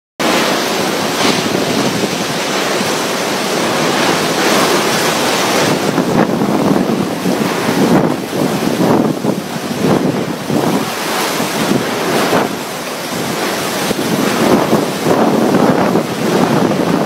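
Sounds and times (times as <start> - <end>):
strong wind rushing: 0.2 - 17.0
wind buffeting microphone: 0.2 - 17.0.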